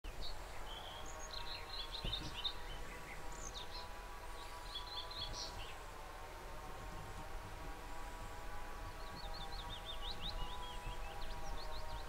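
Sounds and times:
small birds chirping: 0:00.1 - 0:05.9, 0:07.9 - 0:12.0
faint steady hum: 0:00.1 - 0:12.0.

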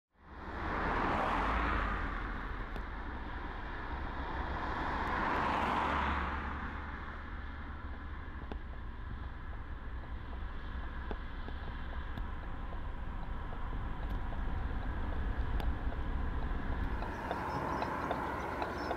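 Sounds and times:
vehicles passing: 0:00.2 - 0:18.9
steady low rumble: 0:07.2 - 0:18.9.

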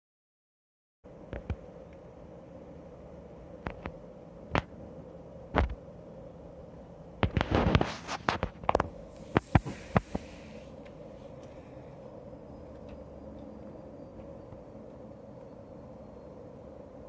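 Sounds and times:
faint steady hum: 0:01.1 - 0:17.0
crackling rustle: 0:07.2 - 0:11.7.

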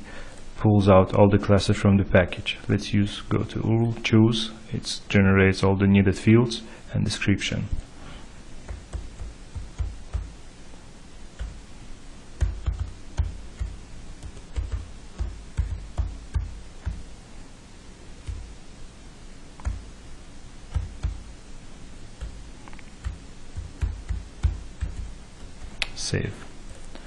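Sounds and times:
typing on computer keyboard: 0:08.7 - 0:10.3, 0:11.4 - 0:11.6, 0:12.4 - 0:17.1, 0:19.6 - 0:19.8, 0:20.7 - 0:21.2, 0:23.0 - 0:25.1.

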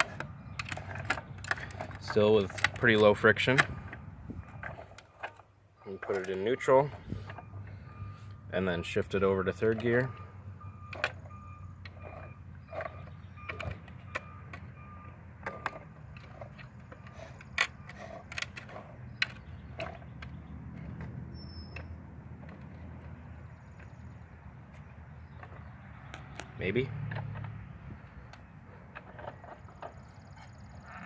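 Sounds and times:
plastic gearbox clicking: 0:00.0 - 0:07.4, 0:15.4 - 0:21.2.

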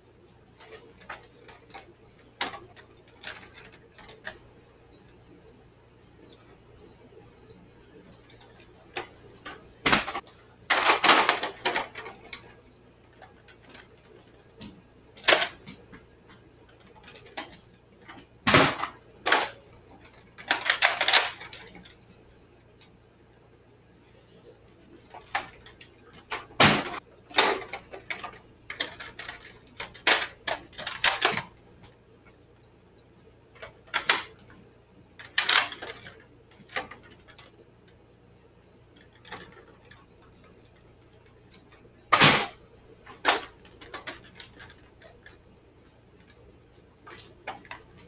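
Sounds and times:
plastic toy clicks and clacks: 0:00.6 - 0:04.4, 0:08.3 - 0:14.3, 0:15.2 - 0:15.9, 0:16.7 - 0:22.1, 0:25.1 - 0:31.6, 0:33.6 - 0:34.6, 0:35.2 - 0:38.0, 0:38.9 - 0:45.4.

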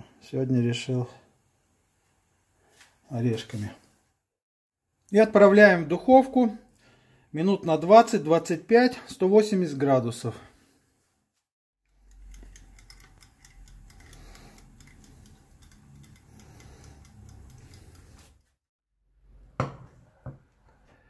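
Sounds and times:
kitchen timer ratchet clicks: 0:11.9 - 0:18.4.

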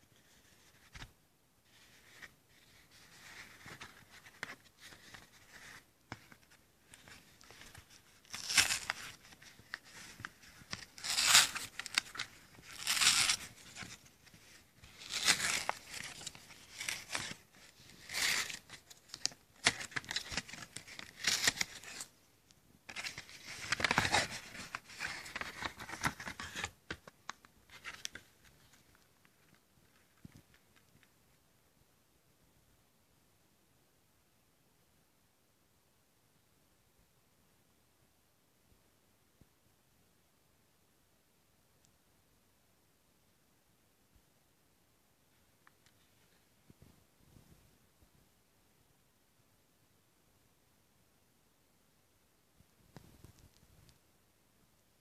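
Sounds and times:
paper crinkling: 0:01.7 - 0:22.1, 0:22.9 - 0:31.1.

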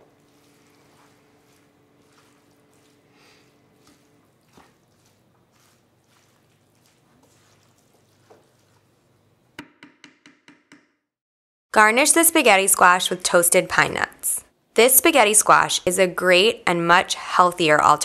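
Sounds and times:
wooden spoon stirring in skillet: 0:00.0 - 0:09.6.

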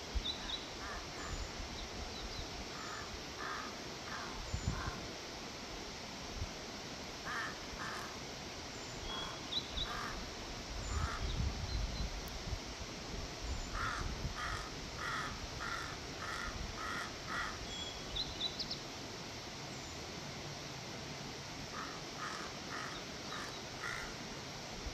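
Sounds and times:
crow cawing: 0:02.8 - 0:05.0, 0:07.3 - 0:08.2, 0:09.9 - 0:10.2, 0:13.8 - 0:17.6, 0:21.7 - 0:24.2.

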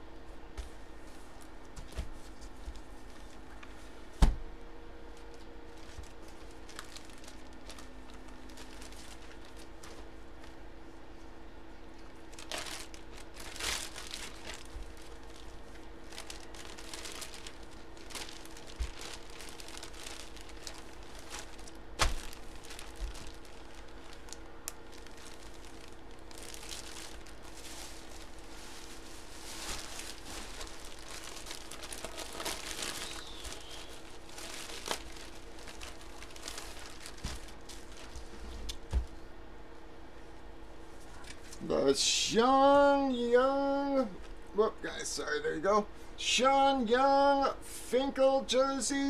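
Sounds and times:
plastic bags crinkling: 0:05.1 - 0:10.6, 0:12.0 - 0:39.0.

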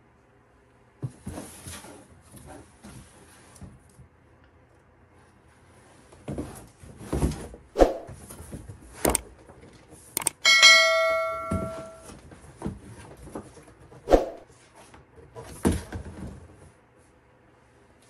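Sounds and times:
sharp knocks: 0:10.2 - 0:12.1.

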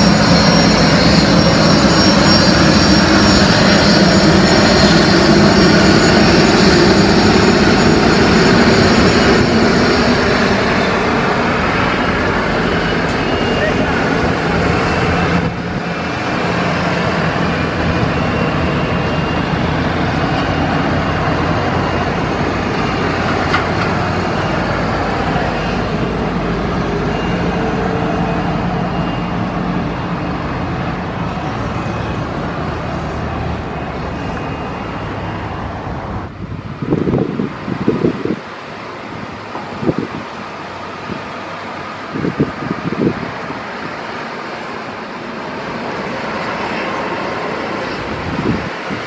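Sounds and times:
jet rumble: 0:00.0 - 0:27.7
jet engine whine: 0:00.0 - 0:49.0.

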